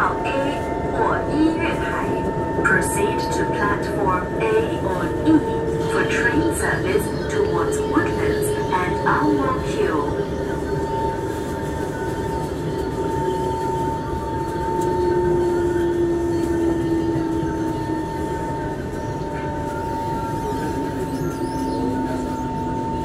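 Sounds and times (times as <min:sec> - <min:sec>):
low whine falling in pitch: 0:00.0 - 0:23.0
train rumble with whine: 0:00.0 - 0:23.0.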